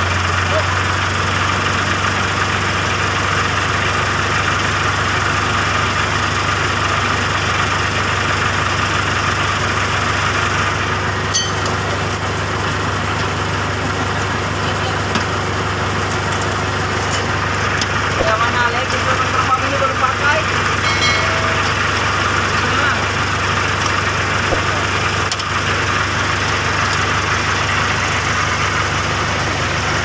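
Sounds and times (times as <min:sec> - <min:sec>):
diesel engine idling: 0:00.0 - 0:30.0.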